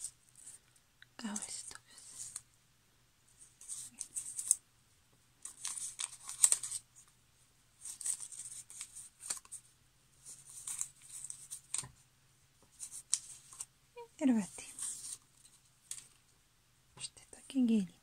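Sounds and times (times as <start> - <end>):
paper and fabric rustling: 5.4 - 7.0, 7.8 - 9.6, 14.3 - 16.2.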